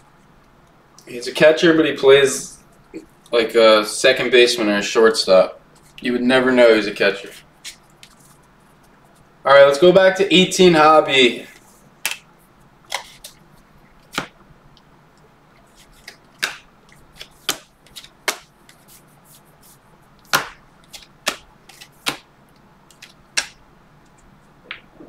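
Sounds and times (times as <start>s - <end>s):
cards snapping with sharp clicks: 12.0s - 12.3s, 14.0s - 14.3s, 16.0s - 18.8s, 20.2s - 22.3s, 22.9s - 23.6s.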